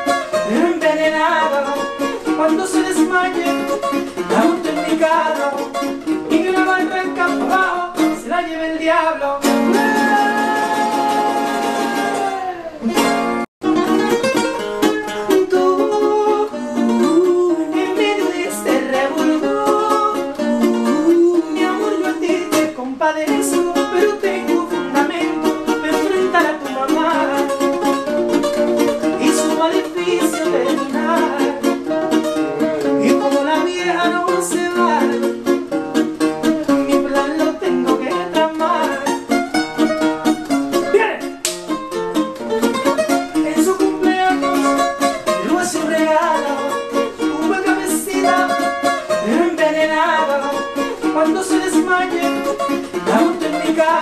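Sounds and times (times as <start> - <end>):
man singing: 0.0 - 13.3, 14.8 - 41.4, 42.9 - 54.0
acoustic guitars plucking: 0.0 - 54.0.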